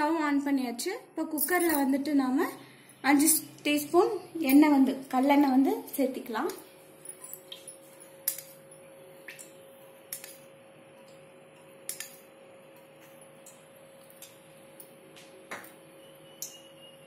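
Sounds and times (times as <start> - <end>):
faint steady hum: 0.0 - 17.0
metal spoon clinking on metal: 7.0 - 8.8.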